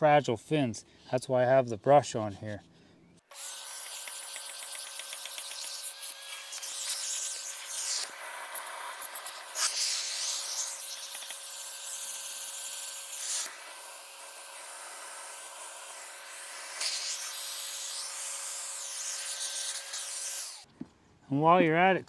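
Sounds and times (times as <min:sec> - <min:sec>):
sharp clicks: 0:03.8 - 0:05.8.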